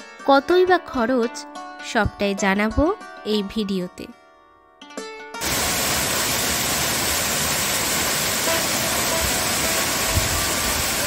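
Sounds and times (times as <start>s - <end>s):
waterfall onto rocks: 5.4s - 11.0s.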